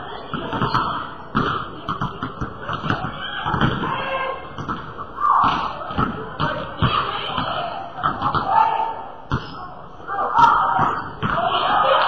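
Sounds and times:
basketball bouncing on wooden floor: 0.3 - 4.0, 4.6 - 8.5.

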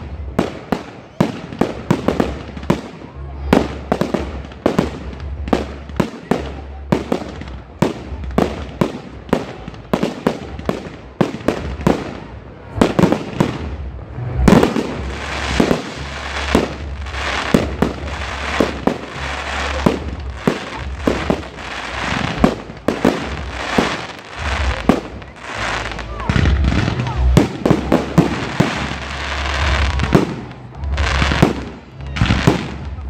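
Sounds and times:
firework crackle: 0.0 - 33.0.

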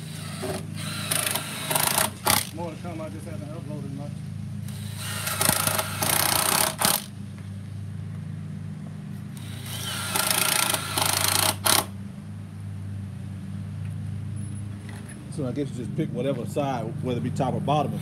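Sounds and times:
cordless drill driving screws: 0.0 - 2.5, 4.6 - 7.1, 9.4 - 11.9.

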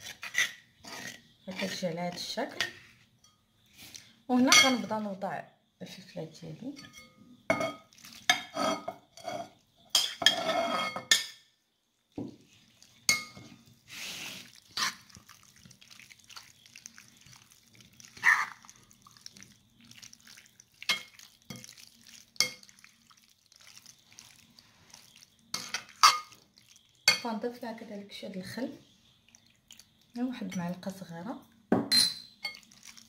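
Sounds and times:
utensils clinking and scraping bowl: 0.0 - 5.0, 6.7 - 11.4, 12.5 - 27.6, 31.9 - 33.0.

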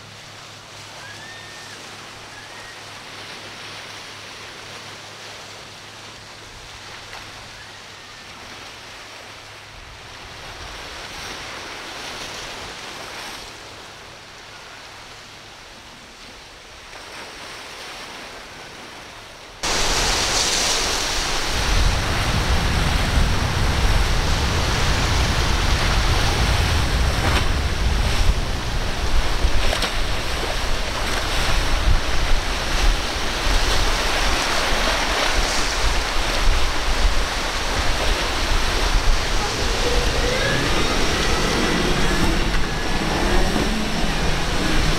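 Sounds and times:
ocean surf washing: 0.0 - 44.9
wind buffeting microphone: 19.6 - 44.9
heavy low rumble: 35.6 - 44.9.

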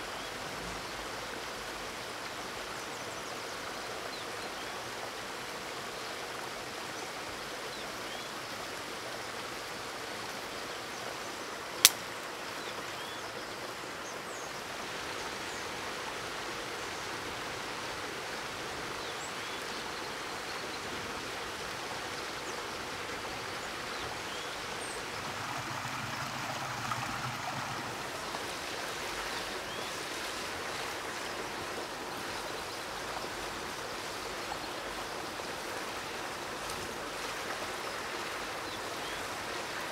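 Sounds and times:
stream water rushing: 0.0 - 39.9
sharp click: 11.8 - 12.0.

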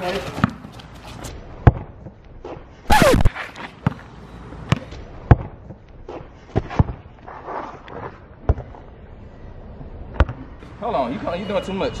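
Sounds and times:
basketball bouncing on concrete: 0.1 - 0.8, 1.6 - 2.6, 3.8 - 4.1, 4.7 - 7.0, 8.4 - 8.7, 10.2 - 10.4.

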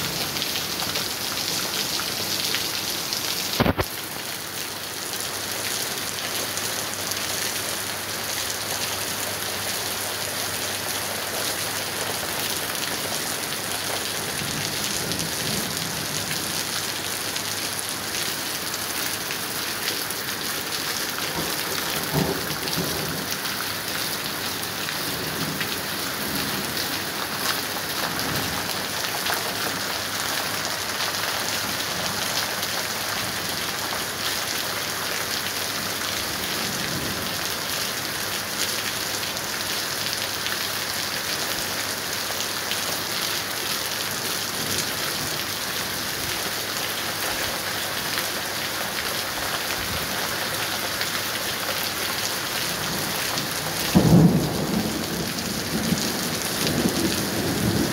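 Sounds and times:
heavy rain pouring on street: 0.0 - 57.9
distant thunder rolling: 53.8 - 57.9.

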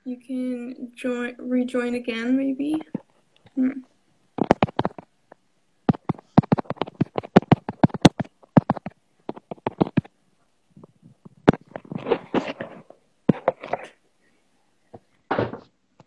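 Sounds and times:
sharp clicks and taps: 4.4 - 5.1, 5.9 - 10.1.

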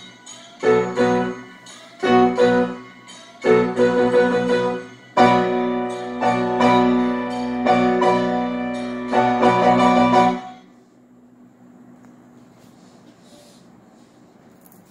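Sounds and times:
piano chords: 0.0 - 10.7.

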